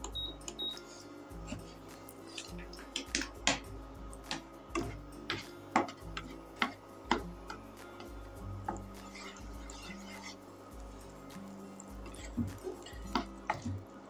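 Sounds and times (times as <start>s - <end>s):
soft background music: 0.0s - 14.0s
wooden spatula scraping frying pan: 0.9s - 3.6s, 4.3s - 13.8s.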